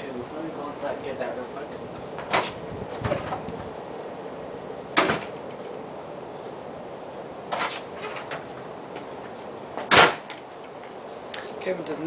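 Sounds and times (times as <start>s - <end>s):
sharp knocks: 5.0s - 5.5s, 7.5s - 8.5s, 9.8s - 10.4s.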